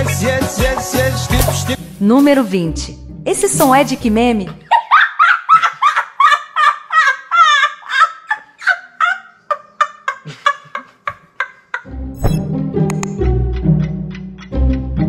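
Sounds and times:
boy laughing in gasping bursts: 0:04.8 - 0:11.9.

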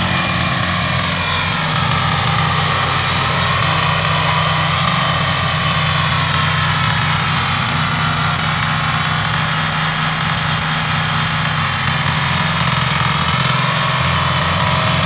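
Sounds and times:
tiller engine running: 0:00.0 - 0:15.0.

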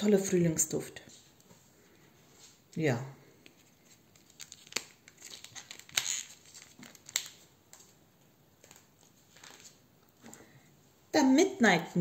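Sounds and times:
packaging rustling and crinkling: 0:03.5 - 0:10.3.

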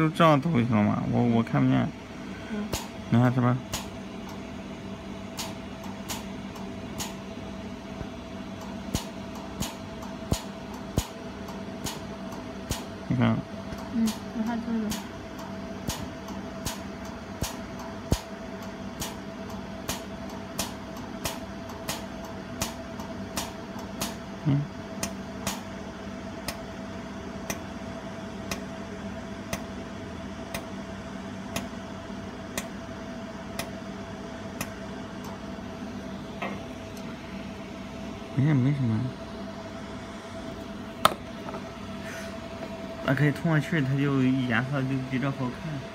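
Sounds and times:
steady machine hum: 0:00.0 - 0:45.9
laser welder ticking: 0:02.7 - 0:03.0, 0:03.6 - 0:04.4, 0:05.3 - 0:07.3, 0:08.6 - 0:13.0, 0:13.7 - 0:24.3, 0:25.0 - 0:25.7, 0:26.4 - 0:26.7, 0:27.4 - 0:27.7, 0:28.4 - 0:28.7, 0:29.5 - 0:29.7, 0:30.5 - 0:30.8, 0:31.5 - 0:31.8, 0:32.5 - 0:32.8, 0:33.5 - 0:33.8, 0:34.6 - 0:35.4.

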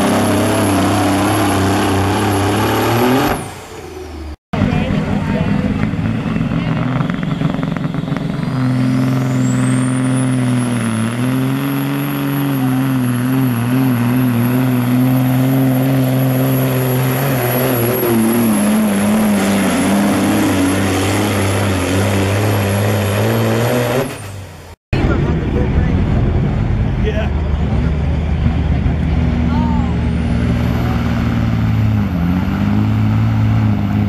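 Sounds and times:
diesel truck engine under load: 0:00.0 - 0:34.0
high turbo whine: 0:00.0 - 0:34.0.

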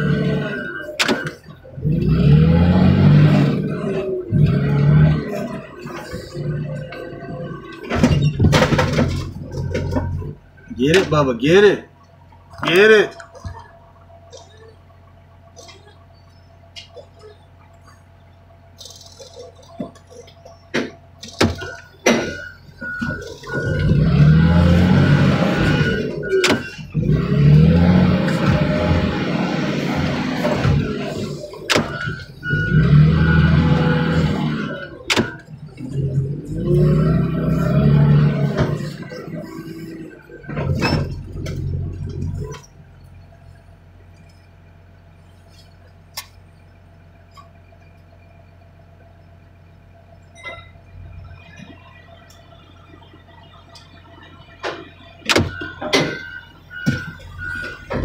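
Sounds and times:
heavy equipment engine running: 0:00.0 - 0:58.0
metal knocks and clanks: 0:06.8 - 0:11.2, 0:40.4 - 0:42.8.

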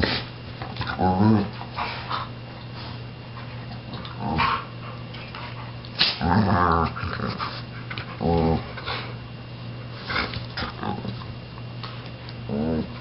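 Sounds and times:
dogs growling: 0:00.0 - 0:02.4, 0:03.6 - 0:09.2, 0:10.0 - 0:11.3, 0:12.3 - 0:13.0.

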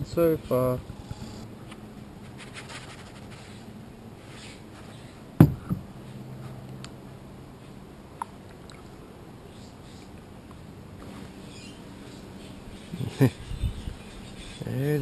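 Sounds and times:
sharp plastic knock: 0:05.4 - 0:05.8.

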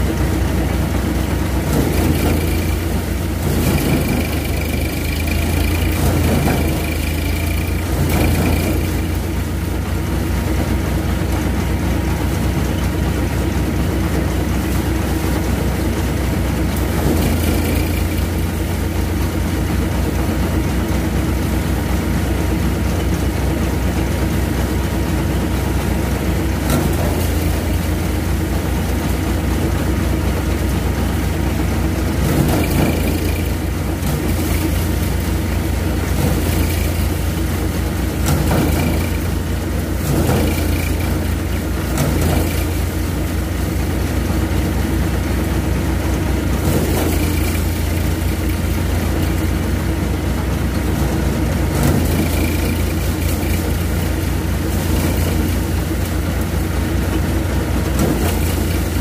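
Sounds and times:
thresher engine humming: 0:00.0 - 0:59.0.

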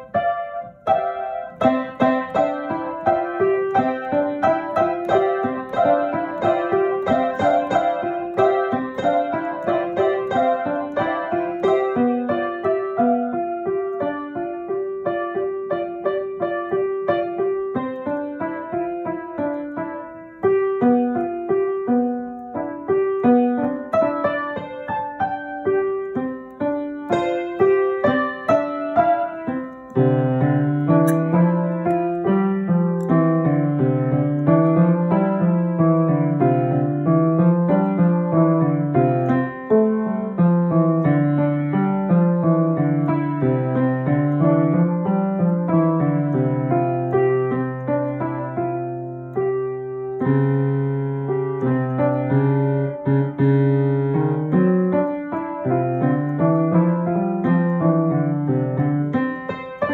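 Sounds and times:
low piano bass line: 0:00.0 - 0:59.9
upright piano improvising: 0:00.0 - 0:59.9.

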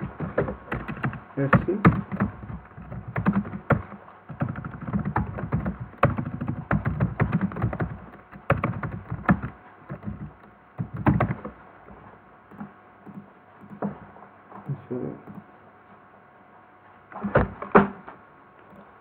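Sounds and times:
typing on computer keyboard: 0:00.0 - 0:11.6.

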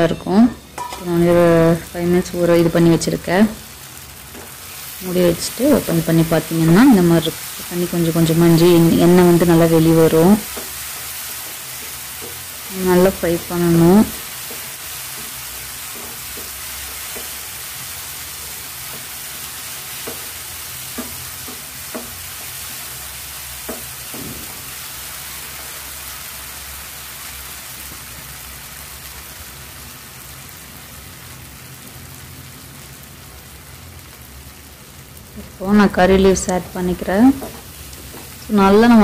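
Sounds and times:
vegetables sizzling in oil: 0:00.0 - 0:39.0
wooden spatula knocking on pan: 0:14.4 - 0:17.4, 0:20.0 - 0:20.3, 0:20.9 - 0:22.5, 0:23.6 - 0:24.7, 0:37.3 - 0:38.4.

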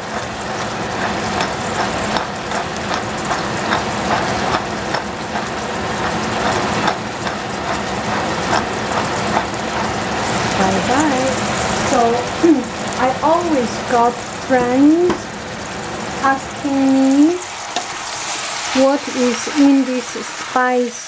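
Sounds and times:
squash sizzling in a pan: 0:00.0 - 0:21.0
spice grinder crunchy clicks: 0:00.1 - 0:09.9.

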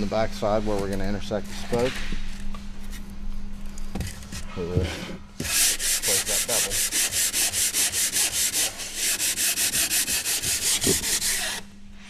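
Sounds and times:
sanding block rubbing wood: 0:05.4 - 0:11.6.

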